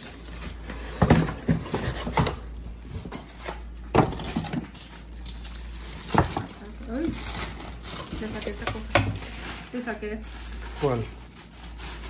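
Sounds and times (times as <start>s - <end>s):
plastic wrap rustling: 0.0s - 12.0s
cardboard packaging knocking: 0.9s - 2.4s, 3.9s - 4.7s, 6.0s - 6.6s.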